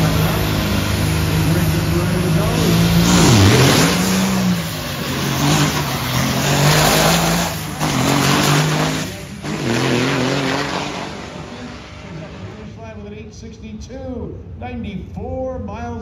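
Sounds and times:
diesel engine at full throttle: 0:00.0 - 0:13.7.

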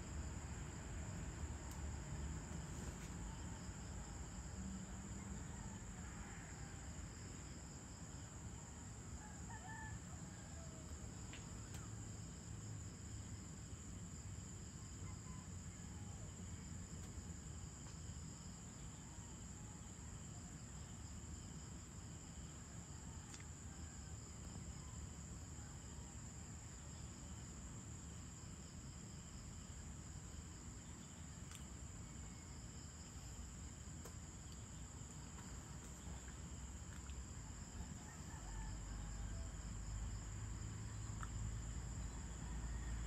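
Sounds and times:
crickets and insects chirping: 0:00.0 - 0:43.0
rooster crowing: 0:09.2 - 0:10.8, 0:37.9 - 0:39.8, 0:42.3 - 0:43.0.

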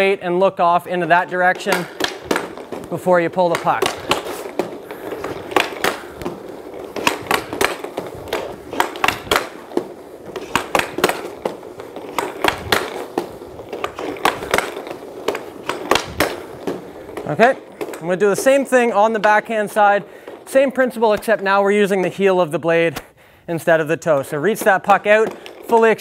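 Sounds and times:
stick striking puck: 0:00.0 - 0:22.2, 0:24.0 - 0:26.0
skate blades scraping: 0:00.0 - 0:26.0.

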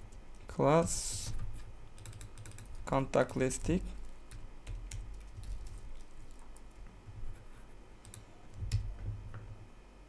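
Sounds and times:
keyboard typing: 0:01.3 - 0:06.8, 0:07.4 - 0:08.9.

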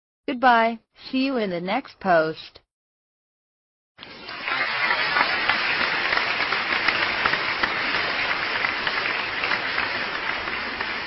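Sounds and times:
crowd applause: 0:04.0 - 0:11.0.

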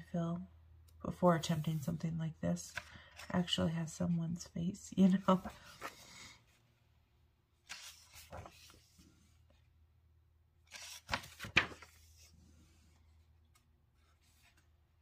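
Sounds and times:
book pages rustling: 0:02.6 - 0:03.6, 0:05.0 - 0:06.6, 0:07.6 - 0:09.6, 0:10.7 - 0:15.0.

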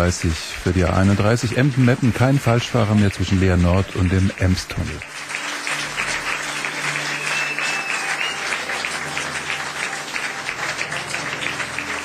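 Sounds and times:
audience applauding: 0:00.0 - 0:12.0
high whistle: 0:07.0 - 0:08.7.

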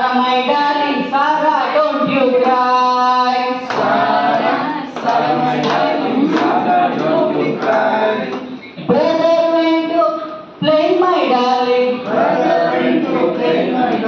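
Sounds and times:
group singing: 0:01.4 - 0:09.2, 0:11.2 - 0:14.0
hand claps: 0:03.7 - 0:08.5.

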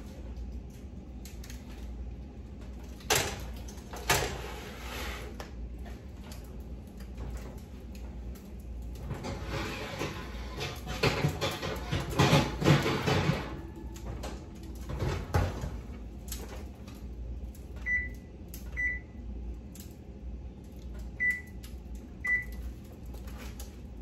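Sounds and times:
baking pan and oven door clattering: 0:09.0 - 0:16.6.

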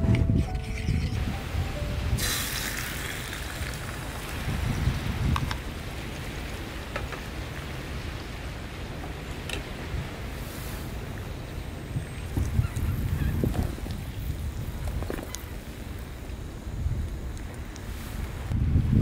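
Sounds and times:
egg sizzling in frying pan: 0:02.2 - 0:04.5.

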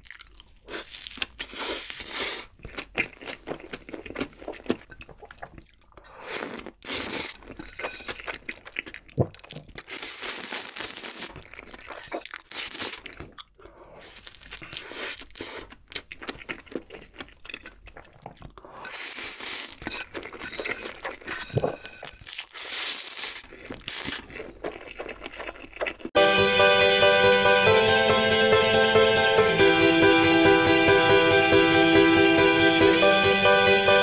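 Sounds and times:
person slurping noodles: 0:00.7 - 0:02.6, 0:06.0 - 0:08.2, 0:18.6 - 0:23.4
guitar music: 0:26.2 - 0:34.0.

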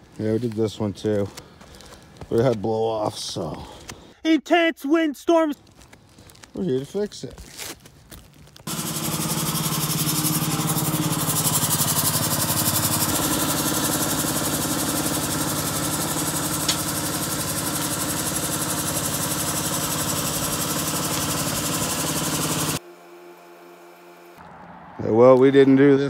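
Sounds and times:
small gasoline engine running: 0:08.7 - 0:22.8.

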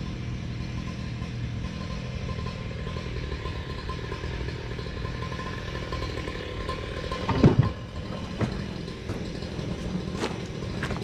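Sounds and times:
excavator diesel engine running: 0:00.0 - 0:11.0
loud machine clunks: 0:07.2 - 0:09.4.

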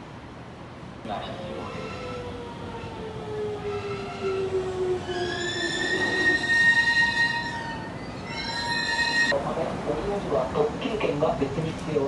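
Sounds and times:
electric train whine: 0:01.1 - 0:10.0
train brake squeal: 0:05.0 - 0:09.3.

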